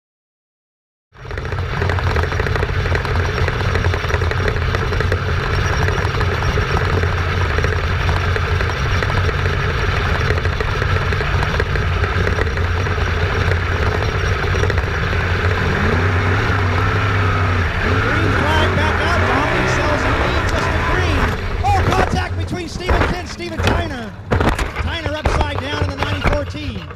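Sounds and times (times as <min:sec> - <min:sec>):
dirt track noise: 0:01.2 - 0:26.9
race car engine running: 0:01.2 - 0:26.9.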